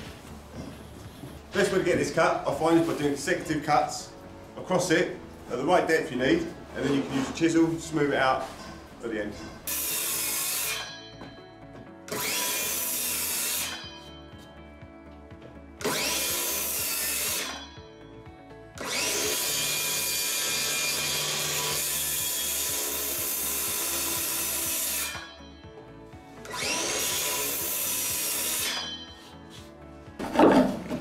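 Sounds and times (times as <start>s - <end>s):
circular saw cutting wood: 9.6s - 11.4s, 12.1s - 14.2s, 15.8s - 17.8s, 18.8s - 25.7s, 26.4s - 29.6s.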